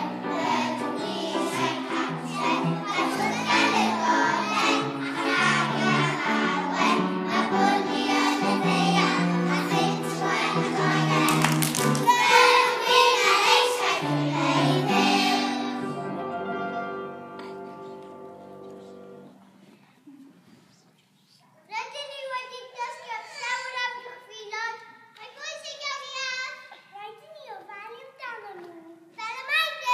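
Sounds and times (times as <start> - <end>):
children singing: 0.0 - 16.2.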